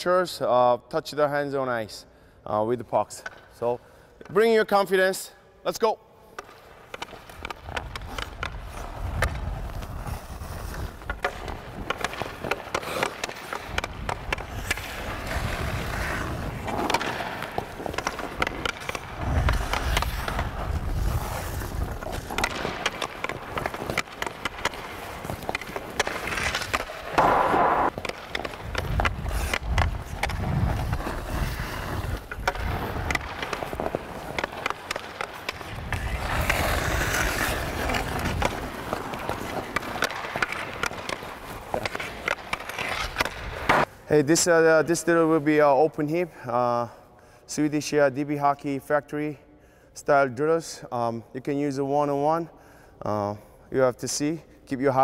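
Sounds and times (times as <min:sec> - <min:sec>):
stick tapping puck: 0:06.4 - 0:43.9
skate blades scraping on ice: 0:06.4 - 0:45.4.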